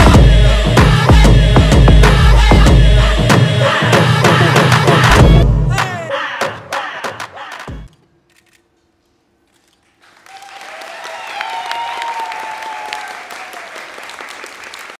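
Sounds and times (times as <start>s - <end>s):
audience applause and cheering: 10.0s - 15.0s.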